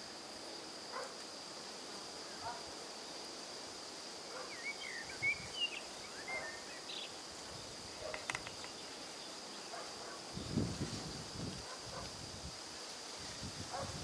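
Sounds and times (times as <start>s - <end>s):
high insect buzz: 0.0s - 14.0s
bird chirps: 4.5s - 7.2s.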